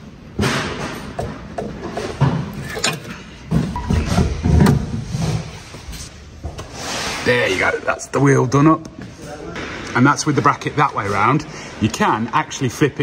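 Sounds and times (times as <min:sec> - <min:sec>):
hand tools clicking and knocking: 0:01.1 - 0:03.9.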